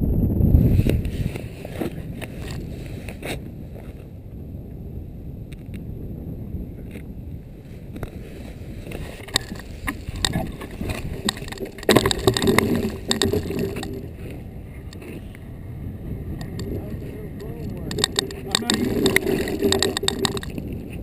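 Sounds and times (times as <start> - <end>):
wind on microphone: 0.0 - 21.0
knocks clicks and scraping: 8.9 - 15.2, 16.4 - 21.0.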